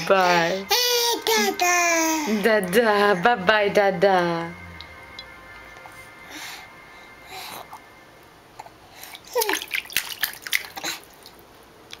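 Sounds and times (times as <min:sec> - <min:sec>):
baby splashing bathwater: 0:09.0 - 0:12.0.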